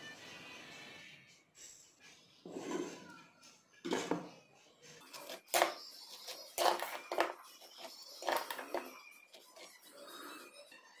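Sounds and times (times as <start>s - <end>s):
knife scraping steel bowl: 5.0s - 10.8s.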